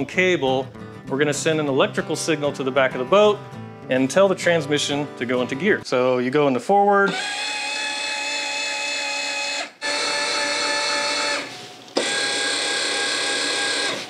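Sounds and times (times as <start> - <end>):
small electric motor whining: 7.1 - 14.0.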